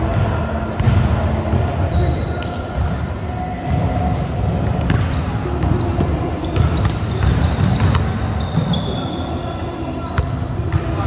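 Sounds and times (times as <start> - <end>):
sneakers squeaking: 0.5 - 3.0, 3.6 - 11.0
basketballs bouncing on wooden floor: 4.6 - 8.9.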